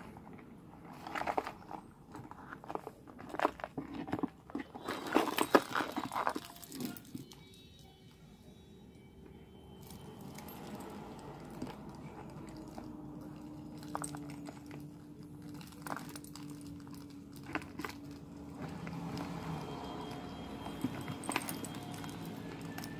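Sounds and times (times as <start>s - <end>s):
metal charms clinking: 4.8s - 7.7s, 9.8s - 22.9s.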